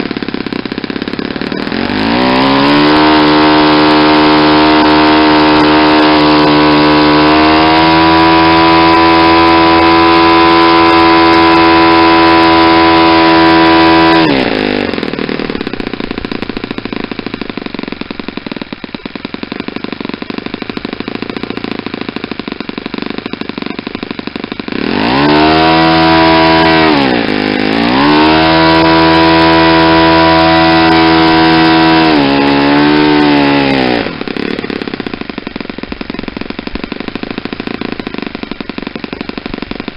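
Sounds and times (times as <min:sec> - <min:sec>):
model aircraft engine revving: 0:00.0 - 0:39.9.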